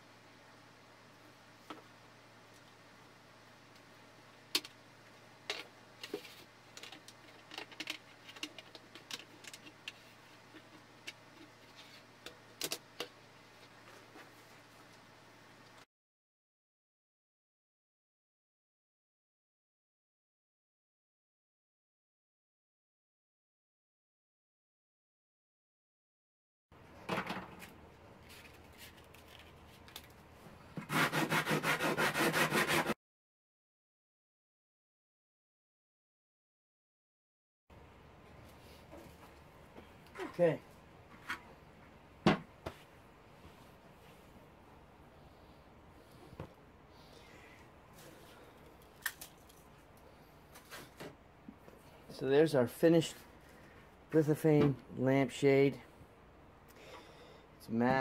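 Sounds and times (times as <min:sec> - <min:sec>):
fast rubbing strokes: 0:30.9 - 0:33.0.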